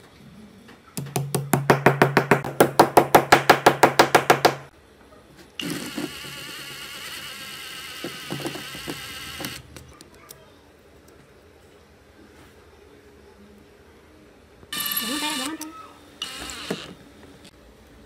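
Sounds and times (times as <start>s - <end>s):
cordless power driver whine: 16.2s - 17.0s.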